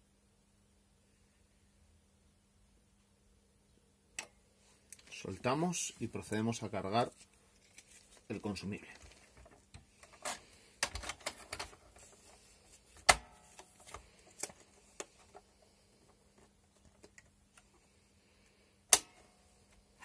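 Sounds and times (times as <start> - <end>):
sharp loud plastic snaps: 18.9 - 19.2.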